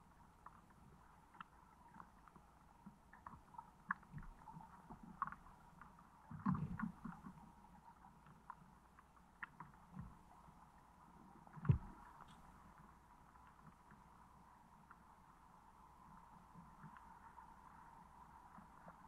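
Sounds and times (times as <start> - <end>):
faint underwater ticks: 0.0 - 19.0
muffled underwater thumps: 11.6 - 12.0.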